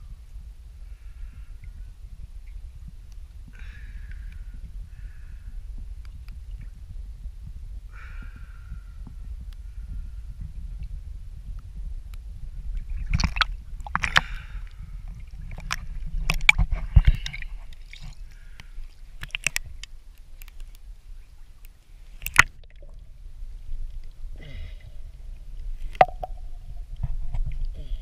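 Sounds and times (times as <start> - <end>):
low rumble: 0.0 - 17.8, 22.5 - 28.0
water sloshing and splashing: 12.8 - 20.8, 22.0 - 23.1
sharp splashes and knocks: 13.1 - 14.3, 22.2 - 22.9, 25.9 - 26.7.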